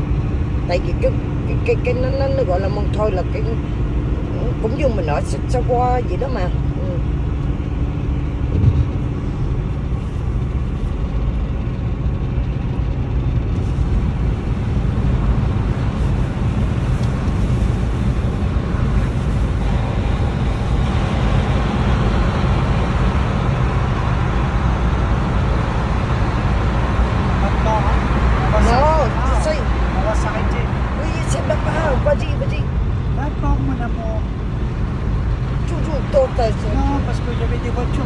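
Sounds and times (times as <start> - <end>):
engine and tyre rumble: 0.0 - 38.0
car bump: 8.5 - 9.2.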